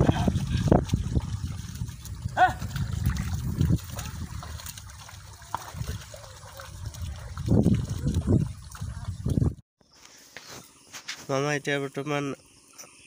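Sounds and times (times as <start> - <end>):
water trickling and sloshing: 0.0 - 9.6.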